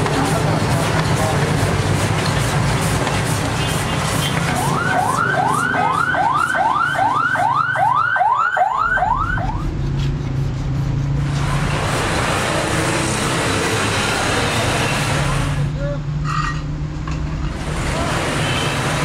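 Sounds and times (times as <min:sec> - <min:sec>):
noise like passing traffic: 0:00.0 - 0:19.0
electronic siren yelping: 0:04.5 - 0:09.7.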